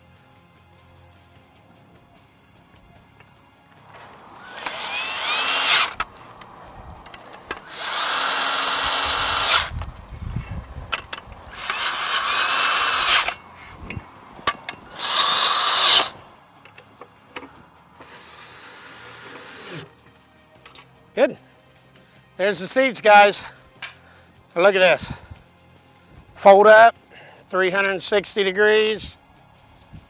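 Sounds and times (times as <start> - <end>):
cordless drill driving bolts: 4.4 - 6.2, 7.1 - 9.9, 11.0 - 13.4, 14.5 - 16.2, 18.0 - 19.9
metal parts clicking and knocking: 4.6 - 10.2, 10.9 - 17.5.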